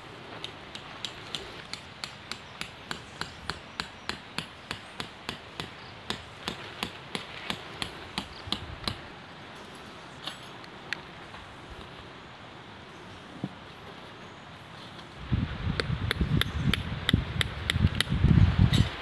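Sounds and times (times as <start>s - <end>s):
hammering tent stake into ground: 0.4s - 9.0s.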